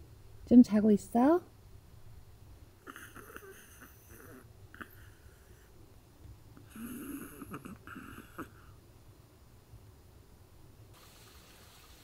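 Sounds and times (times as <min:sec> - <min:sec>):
small dog snoring: 0:02.8 - 0:05.8, 0:06.6 - 0:08.8.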